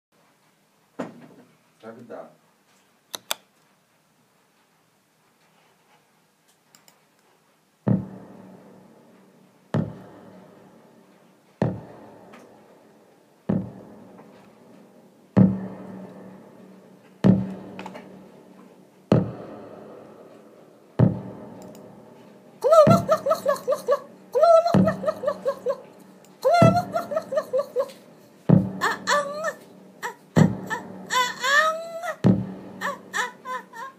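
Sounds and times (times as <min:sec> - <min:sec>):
person's voice: 0:22.6 - 0:25.8, 0:26.4 - 0:28.0, 0:28.8 - 0:32.2.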